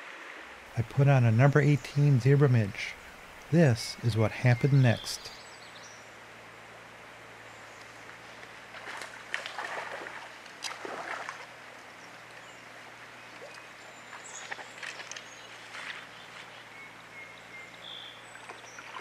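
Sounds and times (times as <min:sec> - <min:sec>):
fish splashing in water: 0:08.7 - 0:11.5.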